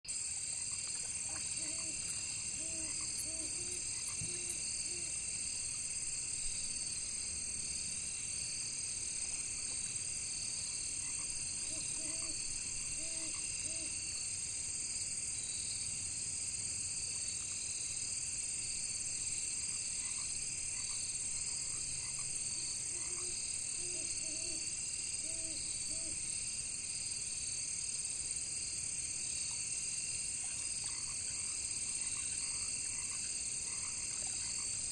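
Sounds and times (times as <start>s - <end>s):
crickets and insects chirring: 0.1s - 34.9s
frog croaking: 0.5s - 5.2s, 10.9s - 14.0s, 21.7s - 26.2s, 30.5s - 34.9s.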